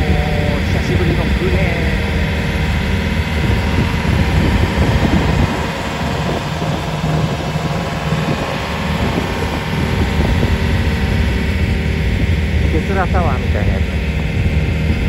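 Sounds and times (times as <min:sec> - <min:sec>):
small boat engine running: 0:00.0 - 0:15.0
water washing against hull: 0:00.0 - 0:15.0.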